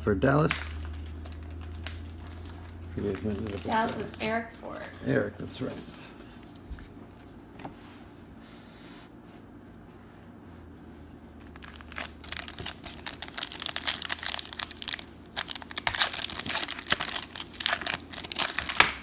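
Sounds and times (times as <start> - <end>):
foil wrapper tearing and crinkling: 0.2 - 4.2, 11.5 - 19.0.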